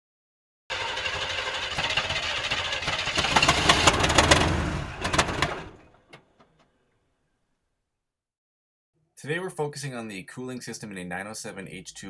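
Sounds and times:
diesel engine running: 0.7s - 5.8s
rapid engine clatter: 0.7s - 5.8s.

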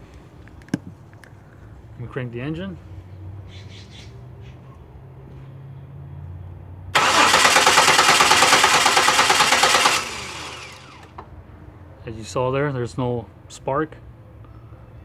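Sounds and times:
car engine cranking on starter: 7.0s - 11.3s.

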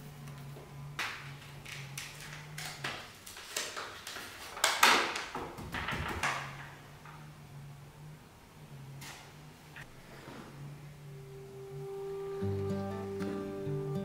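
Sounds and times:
paper bag crinkling and rustling: 1.1s - 5.2s.

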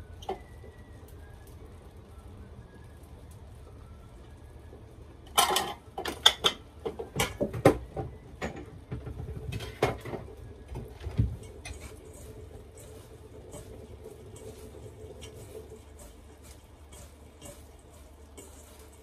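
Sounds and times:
faint steady hum: 0.0s - 19.0s
dishes and utensils clinking: 5.3s - 7.8s.

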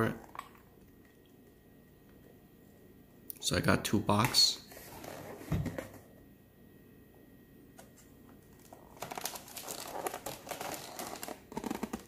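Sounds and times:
plastic packaging crinkling: 8.4s - 12.0s.

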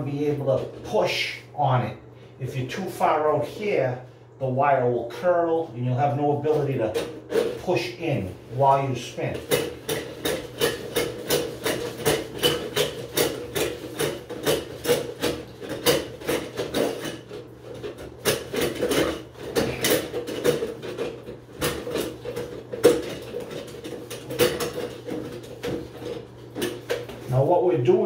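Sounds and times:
drain auger cable rattling: 6.4s - 28.0s.

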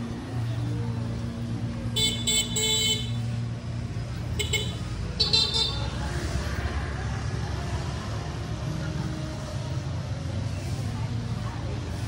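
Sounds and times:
motorbike engine humming: 0.0s - 12.0s
scooter horns beeping: 2.0s - 3.2s, 4.4s - 5.9s.

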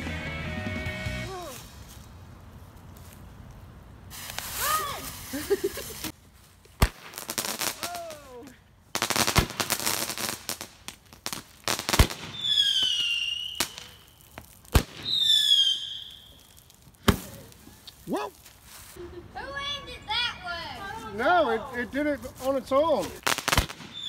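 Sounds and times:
hissing crackle: 4.0s - 6.2s, 9.0s - 19.0s
high firework whistles: 4.1s - 6.1s, 11.7s - 17.3s, 23.3s - 24.0s
firework sharp pops: 6.7s - 7.9s, 9.0s - 18.0s, 23.2s - 24.0s.

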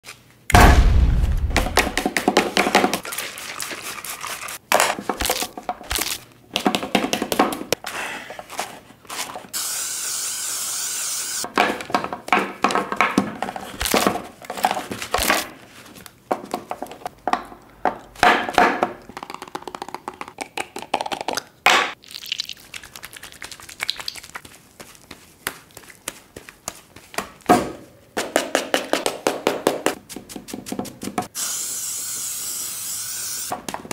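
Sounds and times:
hands rubbing through hair: 22.7s - 27.2s.

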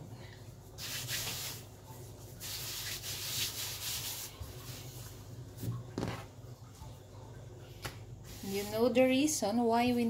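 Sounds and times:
flour sprinkled on dough: 0.8s - 5.7s, 8.3s - 9.0s.

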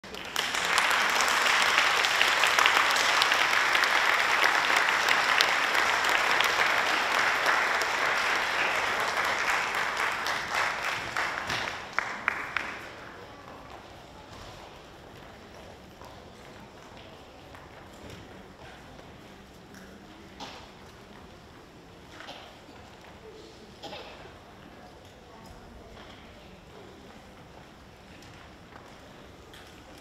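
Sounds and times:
audience applauding: 0.0s - 13.2s.

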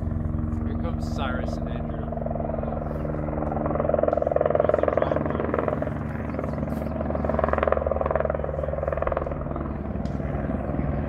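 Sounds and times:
helicopter rotor chopping: 0.0s - 11.0s.

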